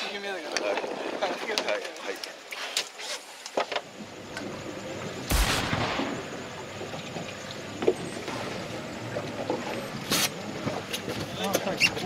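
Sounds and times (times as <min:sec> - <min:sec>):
water noise: 0:00.0 - 0:12.0
wind: 0:00.0 - 0:12.0.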